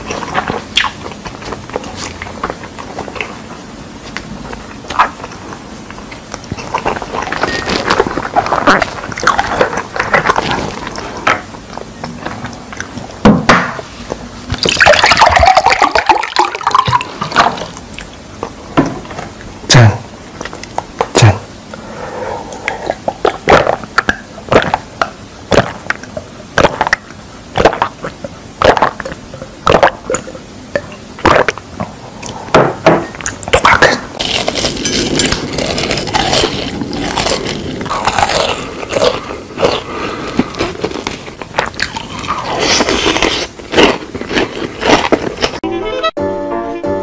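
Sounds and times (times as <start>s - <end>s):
gulping and swallowing: 0.0s - 3.5s, 4.5s - 13.2s, 19.2s - 21.8s, 22.5s - 32.6s.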